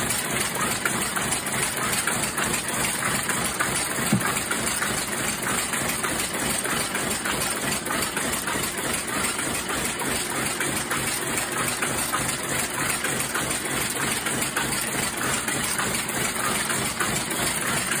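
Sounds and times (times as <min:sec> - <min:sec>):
weaving loom clatter: 0:00.0 - 0:18.0.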